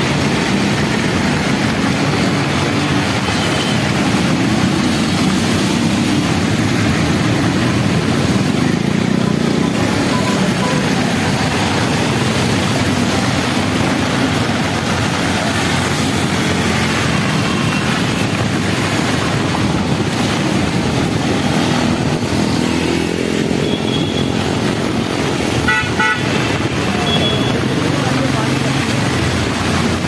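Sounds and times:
auto-rickshaw engine: 0:00.0 - 0:30.0
heavy rain: 0:00.0 - 0:30.0
motorcycle engine: 0:00.0 - 0:30.0
vehicles splashing through water: 0:00.0 - 0:30.0
vehicle horn tooting: 0:25.7 - 0:26.4.

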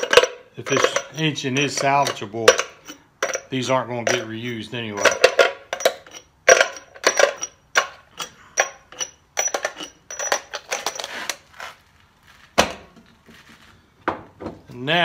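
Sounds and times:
metal bolts clinking: 0:00.0 - 0:11.4.

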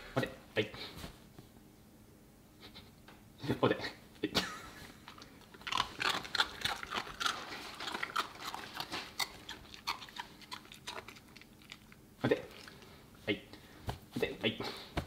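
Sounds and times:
puppy crunching a treat: 0:05.0 - 0:13.0.

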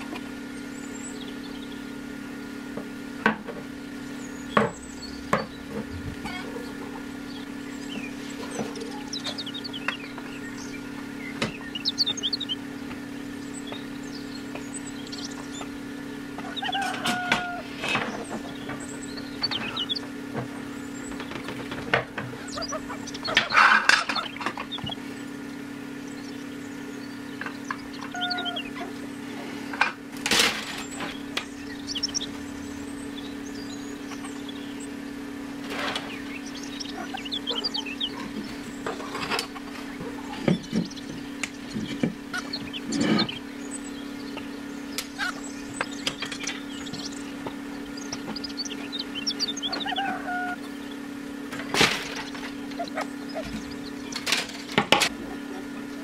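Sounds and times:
steady low hum: 0:00.0 - 0:56.0
faint bird chirps: 0:26.0 - 0:29.2, 0:36.0 - 0:38.9.

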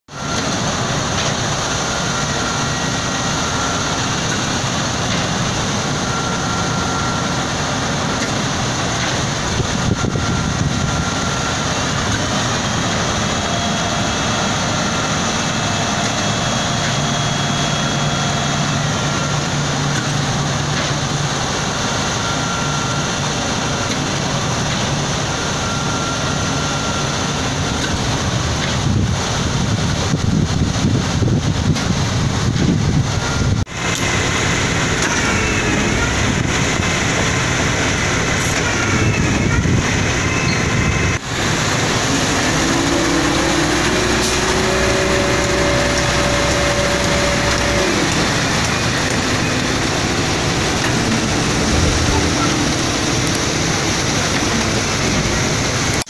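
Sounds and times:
diesel engines running: 0:00.1 - 0:56.0
concrete discharging: 0:33.7 - 0:56.0
short higher tone: 0:42.3 - 0:55.2.

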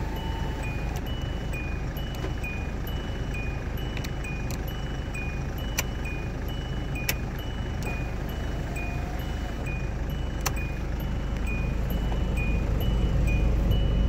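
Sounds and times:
steady low rumble: 0:09.5 - 0:14.0
sharp clicks: 0:10.4 - 0:10.7.

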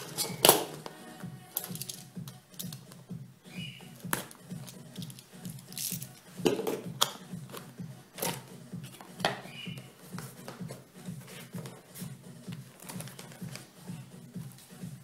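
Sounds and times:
background music with low beat: 0:00.0 - 0:15.0
packing rustling: 0:01.6 - 0:02.8, 0:04.0 - 0:06.5, 0:10.1 - 0:13.8.

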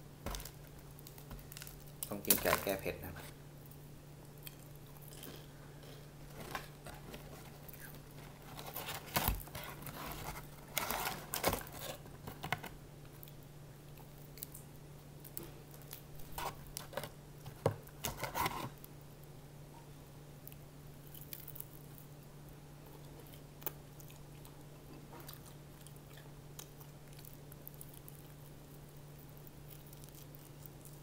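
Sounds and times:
steady low hum: 0:00.0 - 0:31.0
crunching fried chicken: 0:00.3 - 0:03.2, 0:20.4 - 0:22.3, 0:22.9 - 0:31.0.

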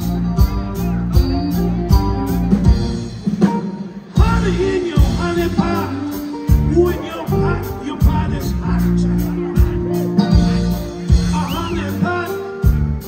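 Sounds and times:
drum beat: 0:00.0 - 0:13.0
resonator guitar: 0:00.0 - 0:13.0
man singing: 0:04.1 - 0:13.0.

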